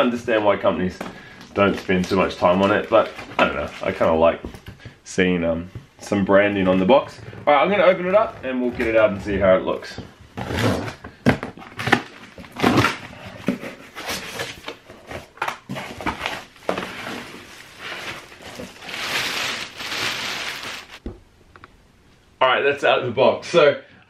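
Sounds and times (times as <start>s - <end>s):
plastic wrap crinkling: 15.7s - 21.0s.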